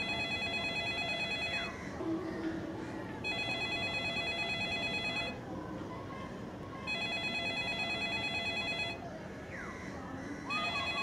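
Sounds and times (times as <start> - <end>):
phone ringing with electronic trill: 0.0 - 1.8, 3.2 - 5.4, 6.8 - 9.0, 10.5 - 11.0.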